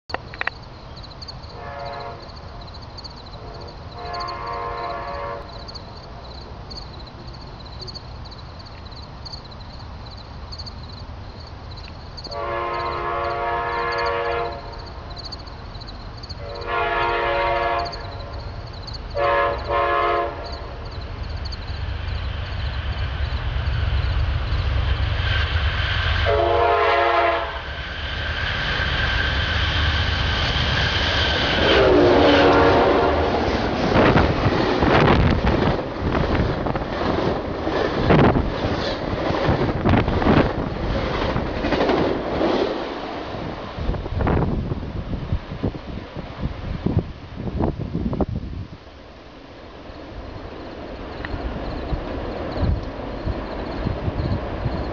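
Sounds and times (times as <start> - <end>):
diesel locomotive rumble: 0.1 - 54.9
rail noise: 0.1 - 54.9
train horn blasts: 1.5 - 2.4, 3.4 - 5.7, 12.3 - 14.8, 16.4 - 18.4, 19.1 - 20.8, 26.2 - 27.6, 31.5 - 34.2.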